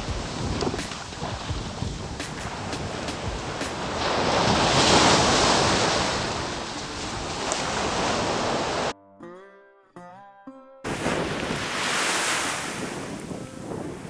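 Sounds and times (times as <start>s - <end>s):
waves breaking in surf: 0.0s - 8.9s, 10.9s - 14.0s
wind on microphone: 0.0s - 8.9s, 10.9s - 14.0s
music with changing notes: 8.9s - 14.0s.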